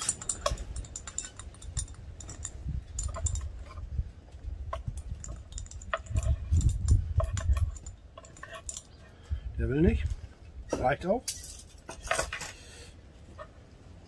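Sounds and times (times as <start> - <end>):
wind rumble on microphone: 0.0 - 10.8.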